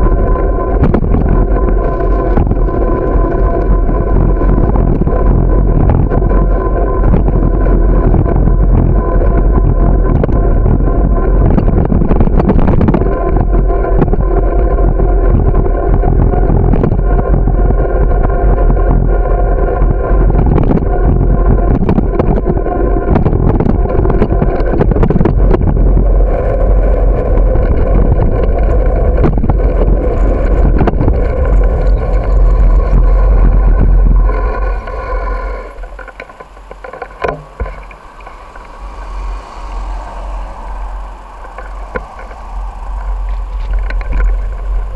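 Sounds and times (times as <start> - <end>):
bicycle rumble and rattle: 0.0 - 44.9
sharp clicks from road surface: 27.3 - 39.1, 41.4 - 44.9.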